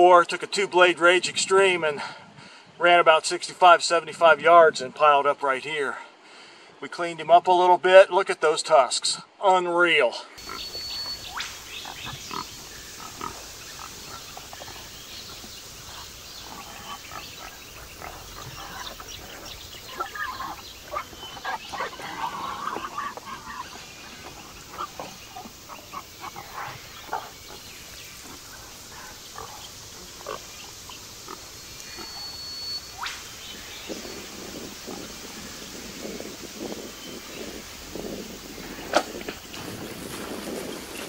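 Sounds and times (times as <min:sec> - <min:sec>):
wild pigs grunting and squealing: 0:10.4 - 0:33.1.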